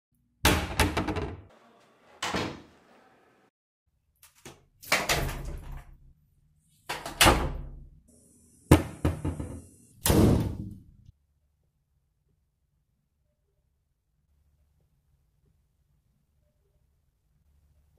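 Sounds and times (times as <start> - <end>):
doors slamming: 2.2 - 2.8.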